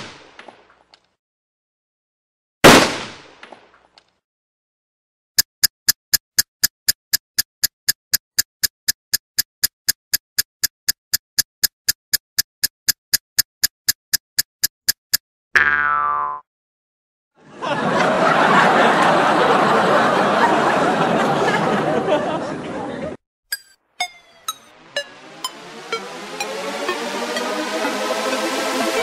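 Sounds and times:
sharp even ticking: 5.4s - 15.2s, 23.5s - 28.0s.

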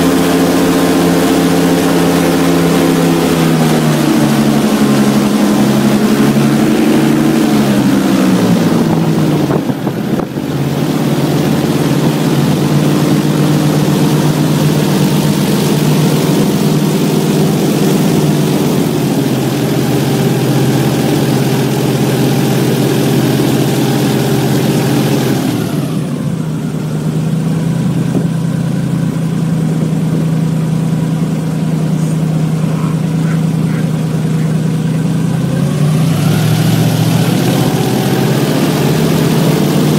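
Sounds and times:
airboat engine and propeller: 0.0s - 39.9s.

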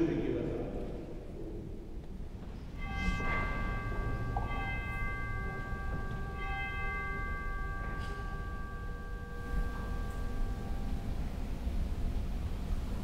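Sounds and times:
altar bell ringing: 2.6s - 13.0s.

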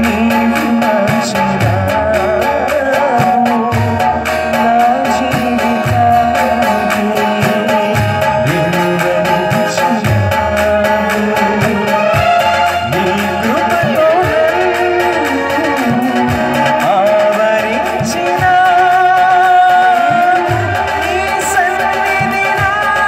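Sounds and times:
man singing into microphone: 0.0s - 23.0s
musical accompaniment: 0.0s - 23.0s
steady drum beat: 0.0s - 23.0s.

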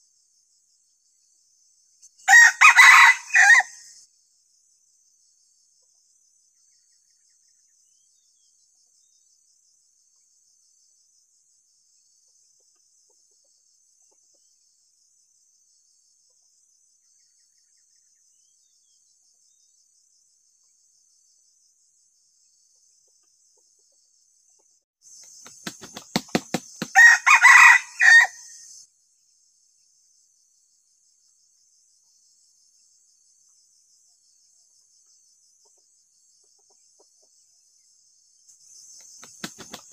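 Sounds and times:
rooster crowing: 2.3s - 3.9s, 26.8s - 28.6s
wing flapping: 25.3s - 27.0s, 39.0s - 39.9s.

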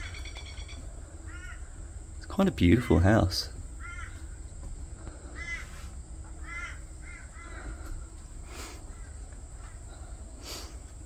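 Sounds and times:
crow cawing: 0.0s - 1.9s, 3.8s - 4.4s, 5.2s - 8.0s, 8.8s - 9.8s
steady low rumble: 0.0s - 11.0s.

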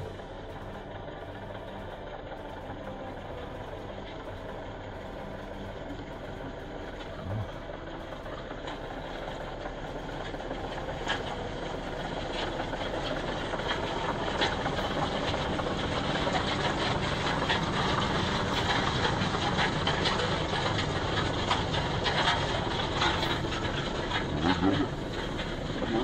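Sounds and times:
tractor diesel engine: 0.0s - 26.0s
steel wheels rattling on road: 10.2s - 26.0s.

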